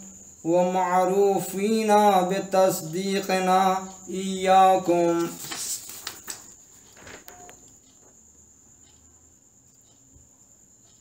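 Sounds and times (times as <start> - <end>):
person speaking: 0.4 - 6.4
faint high-pitched tone: 7.1 - 7.7.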